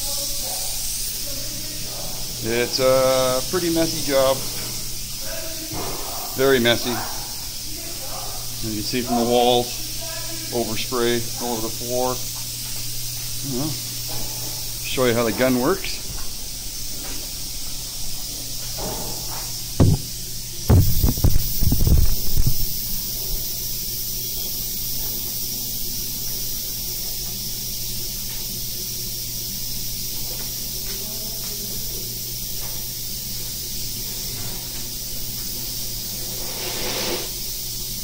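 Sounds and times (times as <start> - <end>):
spray gun air hiss: 0.0 - 38.0
knocks and bumps: 19.8 - 20.1, 20.7 - 22.6.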